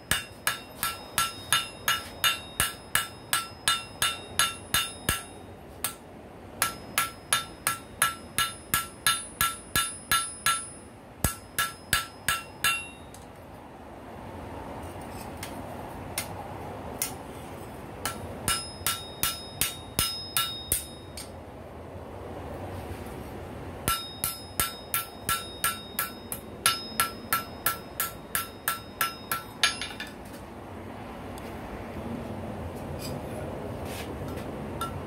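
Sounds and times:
hammer ringing on anvil: 0.0 - 6.0, 6.6 - 13.2, 18.0 - 21.3, 23.9 - 30.1.

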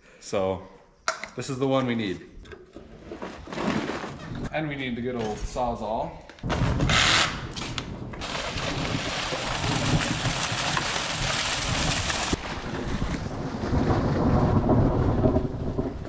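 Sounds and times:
wind blowing on microphone: 6.4 - 16.0
water gushing and spraying: 8.2 - 13.0.

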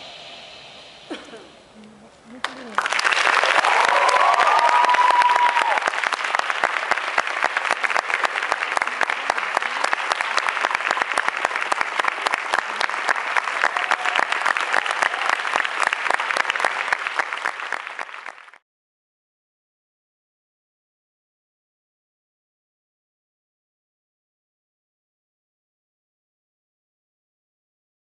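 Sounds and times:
audience applauding: 2.4 - 18.6
audience cheering: 2.4 - 18.6.

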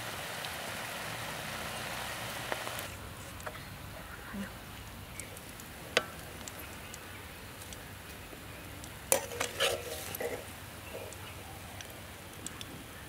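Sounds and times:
faint frying sizzle: 0.0 - 13.0
metal spoon scraping a wok: 9.1 - 11.2.

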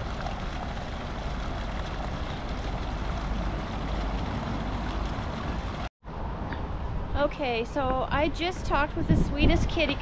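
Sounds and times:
deep rumble: 0.0 - 5.9
fountain jets splashing into basin: 0.0 - 5.9.

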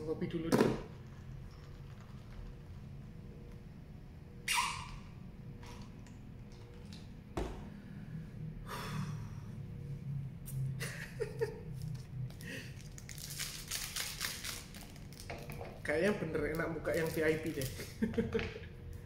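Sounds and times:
foil wrapper crinkling and tearing: 11.8 - 15.4, 16.4 - 18.0.

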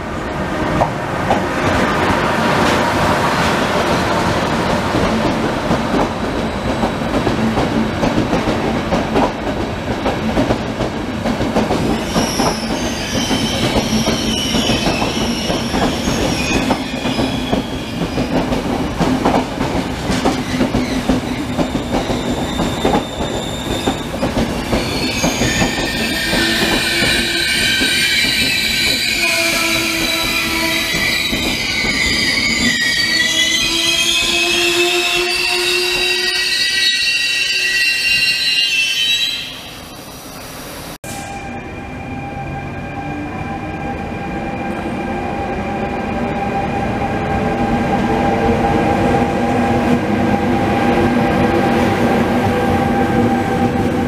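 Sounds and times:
train wheels clattering on rails: 0.8 - 32.9
wheels and brakes squealing: 12.0 - 18.4, 20.4 - 40.2.

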